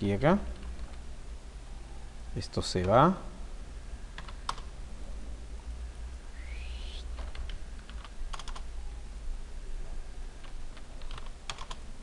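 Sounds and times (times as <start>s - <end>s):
steady low hum: 0.0s - 12.0s
keyboard keystrokes: 7.3s - 8.6s, 10.4s - 11.8s.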